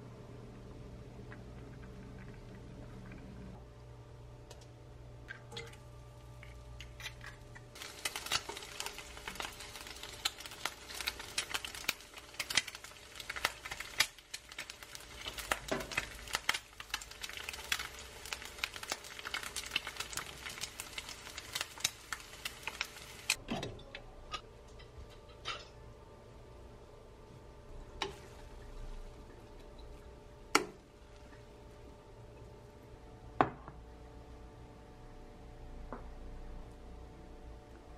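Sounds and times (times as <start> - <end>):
egg sizzling and popping in oil: 0.7 - 3.6, 4.4 - 23.4, 27.7 - 34.3.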